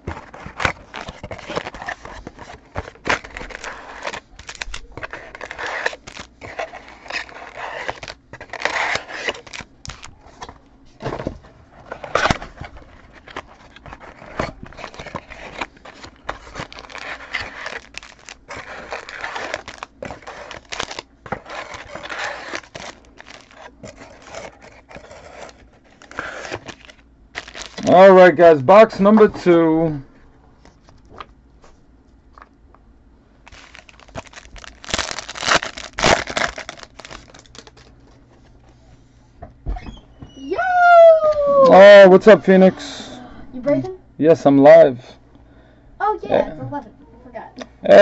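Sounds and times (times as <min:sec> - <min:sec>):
packaging crinkling and tearing: 0:00.0 - 0:10.5, 0:11.8 - 0:28.1, 0:33.4 - 0:38.2.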